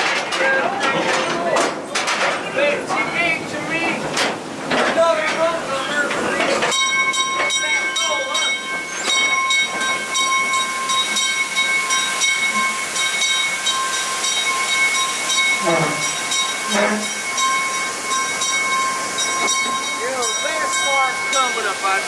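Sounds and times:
waterfall hissing: 1.8s - 22.0s
train wheels squealing on track: 6.8s - 21.8s.

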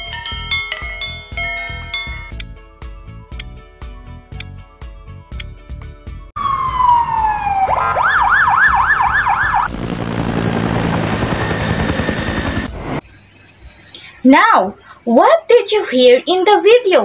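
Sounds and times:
ambulance siren: 6.4s - 12.7s
helicopter rotor running: 9.6s - 13.0s.

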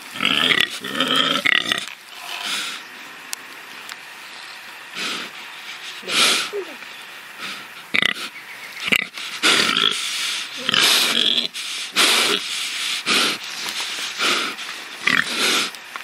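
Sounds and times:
pig grunting and squealing: 0.0s - 2.8s, 7.4s - 13.4s, 14.1s - 15.7s.

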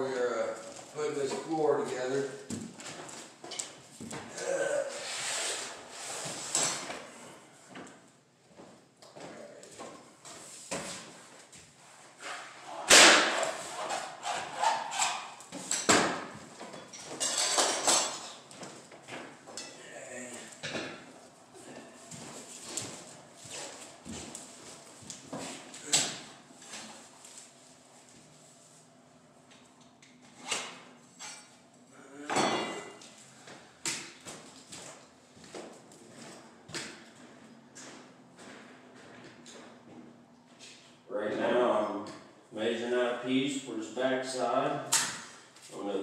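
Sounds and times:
flooring planks and tools clattering: 12.2s - 19.6s.

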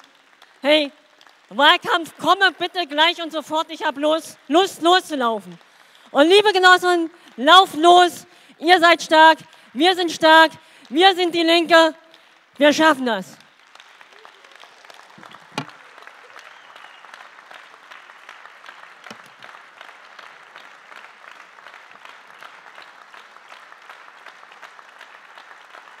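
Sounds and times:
audience applauding: 0.0s - 2.4s, 13.4s - 26.0s
microphone knocking on table: 15.2s - 15.7s.

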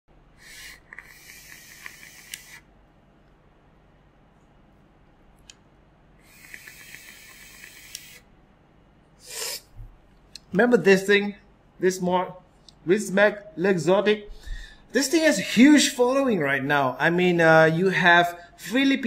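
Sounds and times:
short breath: 0.4s - 2.6s, 9.2s - 9.7s, 14.3s - 14.9s
vape air hissing with crackle: 0.4s - 2.7s, 6.2s - 8.3s, 9.2s - 9.7s.

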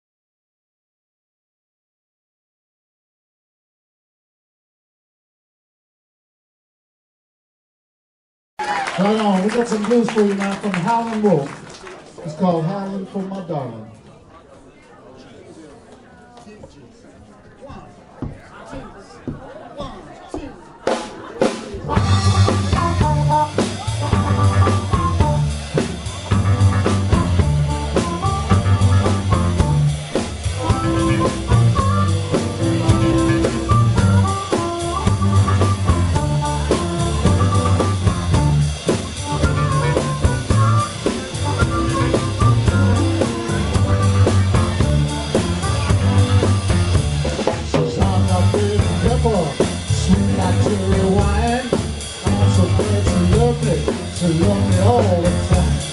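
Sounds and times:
drum kit steady beat: 18.2s - 55.9s
electric bass line: 21.8s - 55.9s
electric piano: 21.9s - 47.2s
harmonica: 30.6s - 38.6s, 39.2s - 46.6s.

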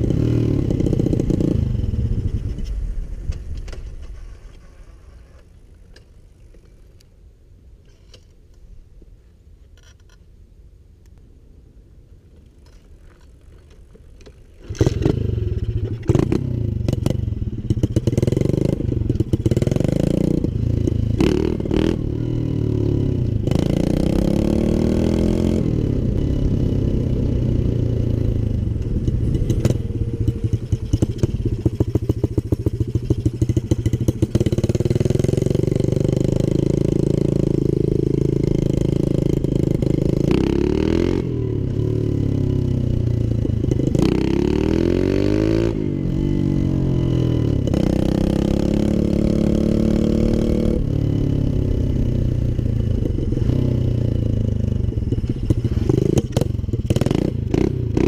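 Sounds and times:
motorbike engine revving: 0.0s - 2.6s, 14.6s - 58.0s.

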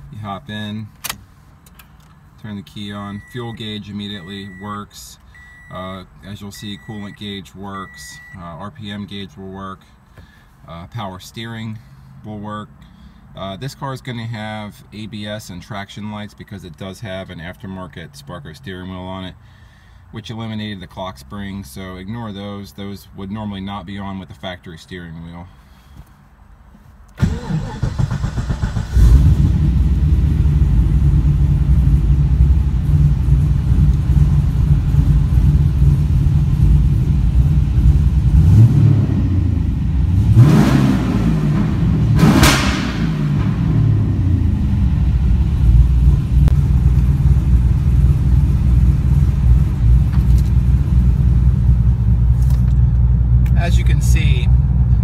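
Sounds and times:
engine revving: 27.2s - 52.2s
car engine idling: 27.2s - 55.0s.

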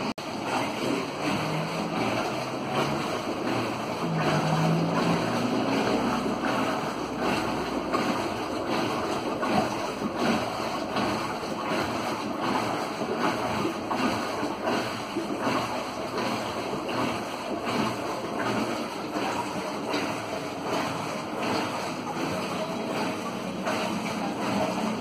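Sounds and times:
washing machine churning water: 0.0s - 25.0s.

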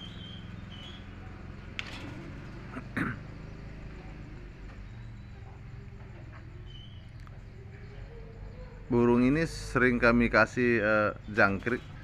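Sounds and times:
faint high bird chirps: 0.0s - 1.7s, 3.4s - 9.7s, 10.8s - 12.0s.

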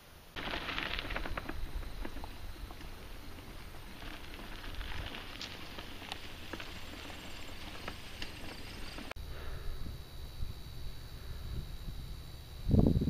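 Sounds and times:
low rumble of bike tyres on trail: 0.0s - 13.0s
bike clicks and rattles: 0.4s - 9.1s.

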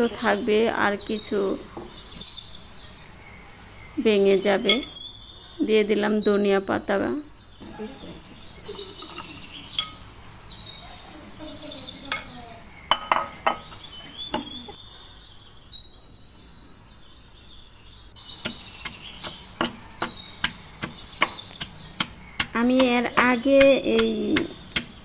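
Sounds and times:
birds chirping: 0.0s - 25.0s
wooden pestle knocking in mortar: 18.4s - 25.0s.

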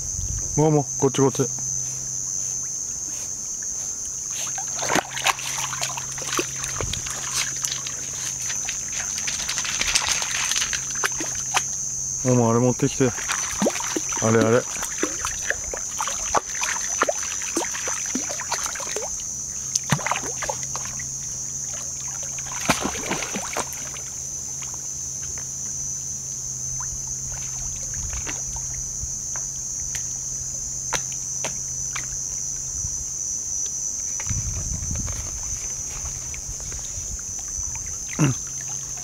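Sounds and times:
dog splashing in water: 4.4s - 11.8s, 13.1s - 19.2s, 19.8s - 24.1s.

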